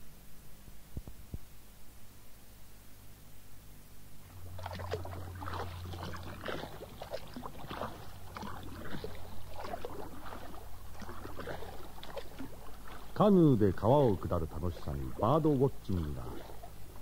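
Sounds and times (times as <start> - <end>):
steady low hum: 0.0 - 17.0
paddle splashing water: 4.3 - 17.0.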